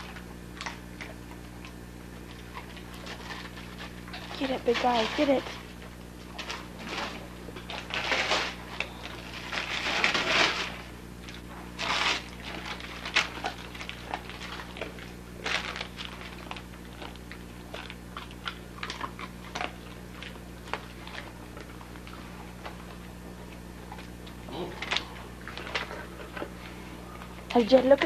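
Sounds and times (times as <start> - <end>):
dog chewing clicks: 0.0 - 4.9, 11.2 - 26.5
wrapping paper crinkling: 2.2 - 28.0.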